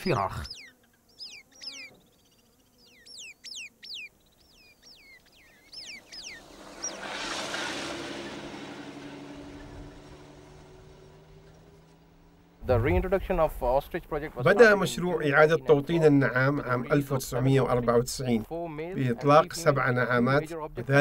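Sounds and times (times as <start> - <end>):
bird chirping: 0.0 - 7.3
vehicle driving past: 5.4 - 13.2.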